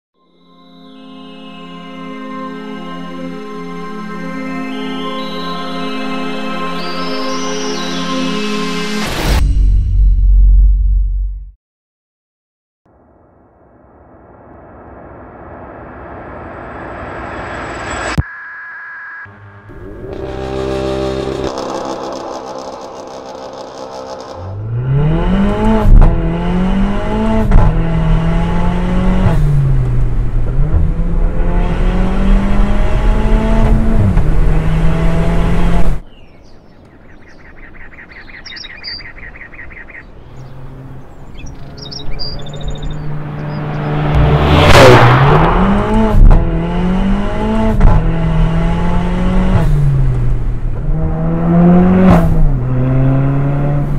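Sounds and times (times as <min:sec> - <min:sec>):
car engine accelerating hard: 0:19.6 - 0:36.0, 0:40.2 - 0:53.9
loud rushing burst: 0:43.0 - 0:46.8.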